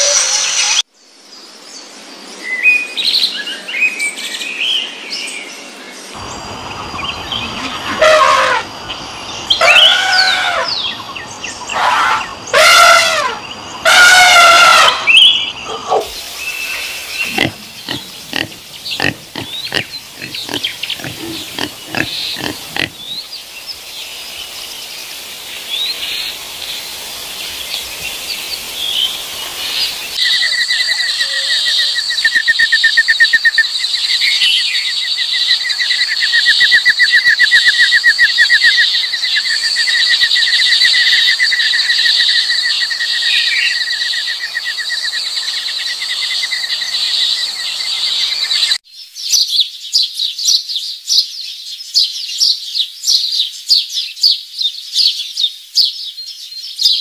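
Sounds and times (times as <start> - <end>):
insects trilling: 6.2 - 48.8
peccary grunting: 17.2 - 23.2.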